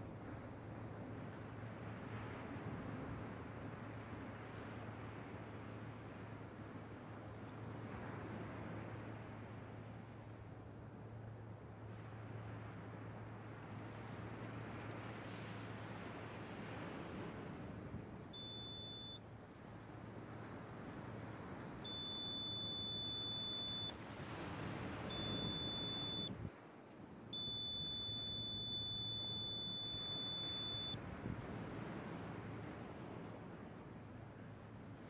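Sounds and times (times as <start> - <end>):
metal detector beeping: 18.4 - 19.2, 21.8 - 23.9, 25.0 - 26.4, 27.4 - 31.0
surf washing: 20.1 - 35.0.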